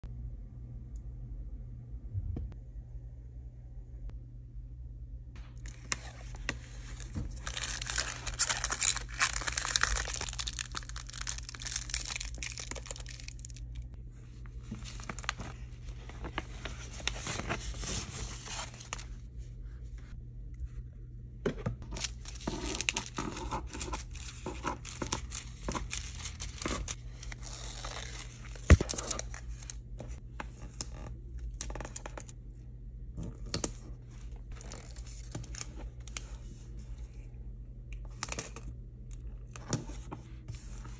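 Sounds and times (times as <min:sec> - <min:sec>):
foil and plastic crinkling: 0:05.6 - 0:13.8, 0:14.7 - 0:19.1, 0:21.9 - 0:29.8.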